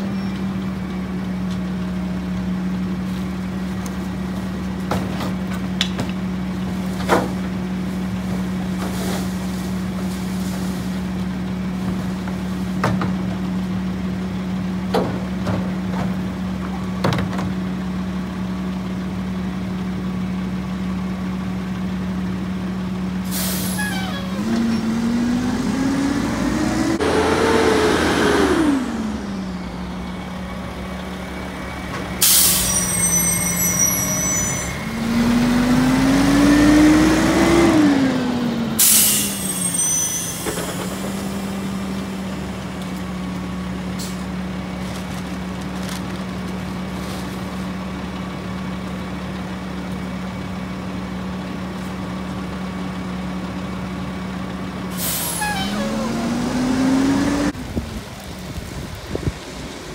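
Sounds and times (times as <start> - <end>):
brake squeal: 0.0 - 1.0, 23.3 - 27.3, 29.3 - 35.6, 38.8 - 42.9, 54.9 - 57.6
diesel truck engine: 0.0 - 59.9
air brake hissing: 23.3 - 24.4, 32.2 - 34.8, 38.8 - 41.0, 54.9 - 56.0.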